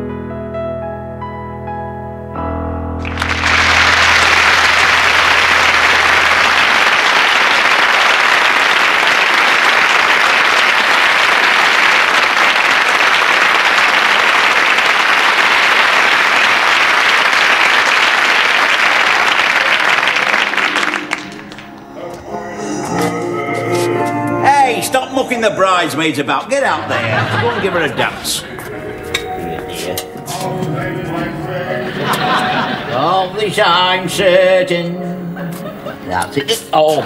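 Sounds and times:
audience applauding: 0:03.0 - 0:22.2.

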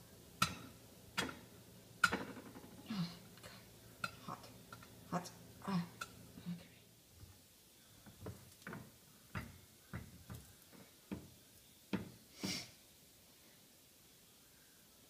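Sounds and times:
spatula tapping and scraping pot: 0:00.4 - 0:02.8, 0:04.0 - 0:05.0, 0:05.9 - 0:06.2, 0:08.0 - 0:11.3.

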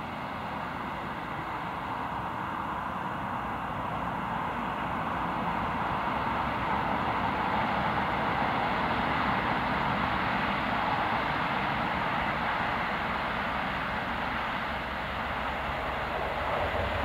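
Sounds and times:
steam locomotive exhaust: 0:05.3 - 0:17.0.

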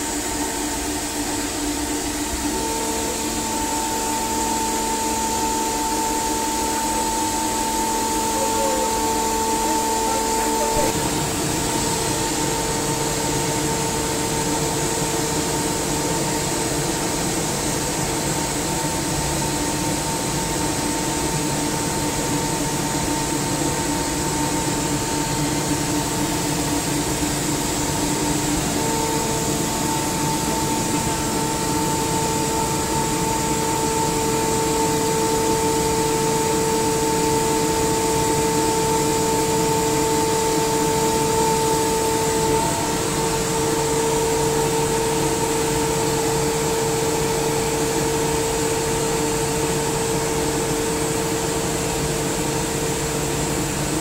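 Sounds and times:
air compressor running: 0:00.0 - 0:54.0.

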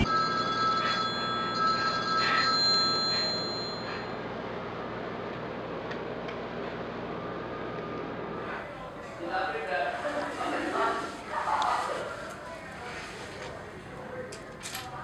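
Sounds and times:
electronic ringing: 0:00.0 - 0:04.2.

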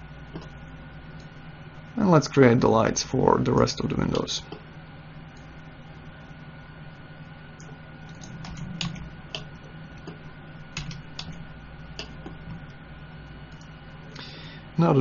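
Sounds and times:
steady low hum: 0:00.0 - 0:15.0
computer keys clicking: 0:07.6 - 0:10.2, 0:10.8 - 0:11.4, 0:12.0 - 0:12.4.

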